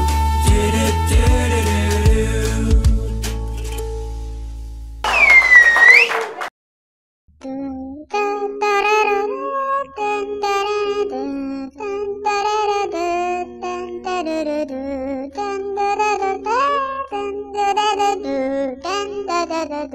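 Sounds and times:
high voice singing: 0.0s - 2.8s, 7.4s - 19.9s.

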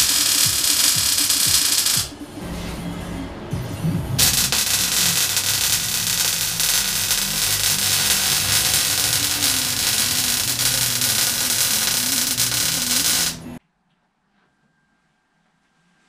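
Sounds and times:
electric arc welding hiss: 0.0s - 2.2s, 4.2s - 13.6s.

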